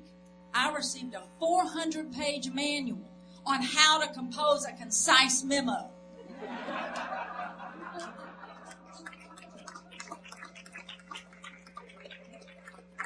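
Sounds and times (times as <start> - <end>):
electrical hum: 0.0 - 13.0
audience laughing: 6.2 - 12.8
scattered clapping: 8.0 - 13.0.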